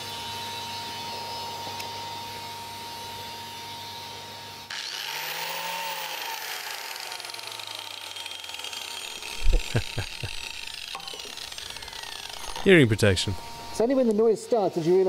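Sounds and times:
angle grinder motor whine: 0:04.1 - 0:14.2.

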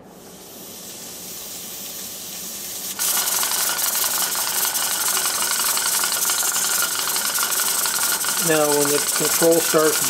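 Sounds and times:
loud steady steam hiss: 0:00.0 - 0:10.0
pressure regulator rattling: 0:03.0 - 0:10.0.

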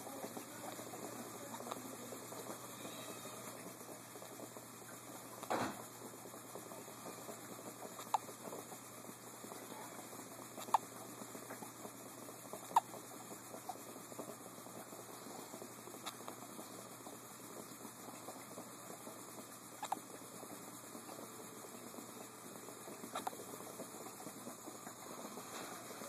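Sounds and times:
baby hiccupping: 0:12.6 - 0:13.0, 0:23.1 - 0:23.4.

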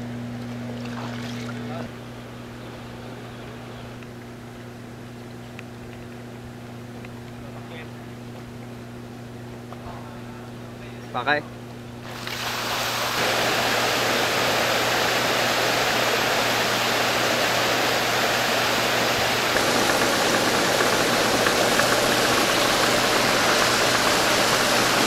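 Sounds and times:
low motor hum: 0:00.0 - 0:25.0
water splashing: 0:00.7 - 0:01.9, 0:12.0 - 0:25.0.

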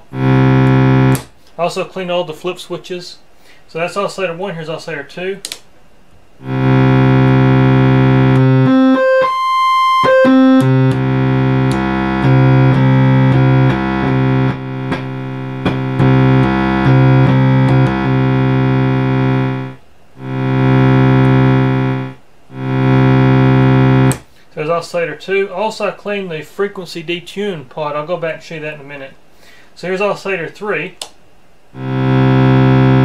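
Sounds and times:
synthesizer holding a low note: 0:00.0 - 0:01.2, 0:06.4 - 0:24.2, 0:31.8 - 0:33.0.

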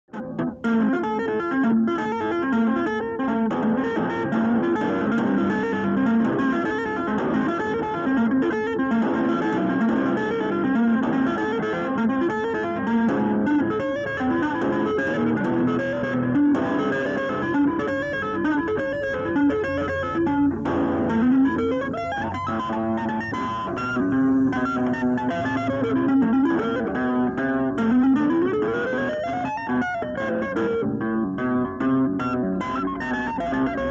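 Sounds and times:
electric guitar tapping runs: 0:00.1 - 0:33.9.

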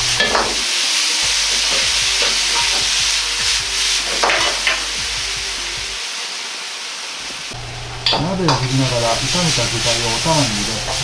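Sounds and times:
metal ladle scraping a wok: 0:00.0 - 0:05.0
food sizzling in a wok: 0:00.0 - 0:11.0
gas burner noise: 0:00.0 - 0:11.0.

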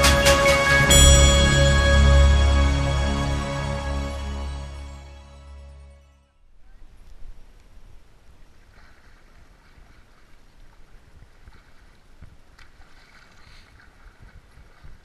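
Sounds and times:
water splashing: 0:06.9 - 0:15.0.

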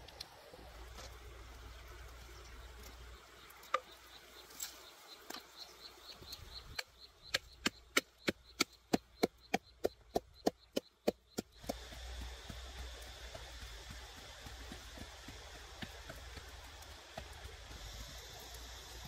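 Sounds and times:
pestle pounding in mortar: 0:07.3 - 0:16.6.

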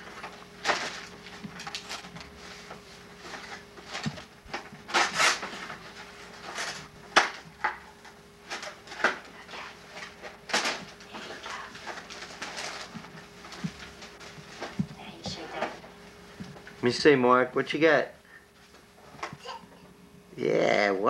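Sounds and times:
packaging rustling and crinkling: 0:00.0 - 0:16.7
steady low hum: 0:00.0 - 0:21.0.

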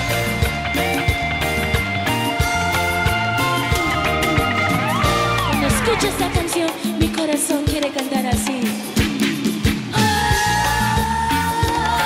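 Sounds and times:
bass: 0:00.0 - 0:06.6, 0:09.3 - 0:12.0
live cumbia band playing: 0:00.0 - 0:12.0
regular drum beats: 0:00.0 - 0:12.0.

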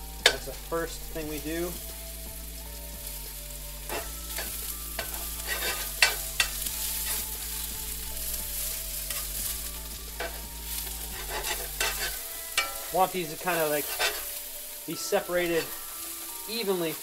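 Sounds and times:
onions sizzling in oil: 0:00.0 - 0:17.0
spatula scraping pan: 0:03.8 - 0:16.0.

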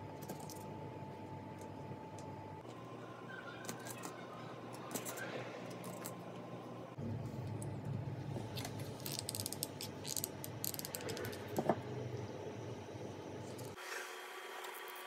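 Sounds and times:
low hum: 0:04.2 - 0:13.8.

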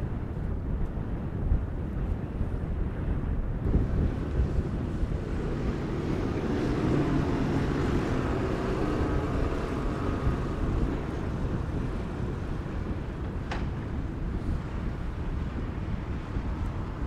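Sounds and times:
wind buffeting microphone: 0:00.0 - 0:17.0
ship diesel engine drone: 0:03.7 - 0:17.0.

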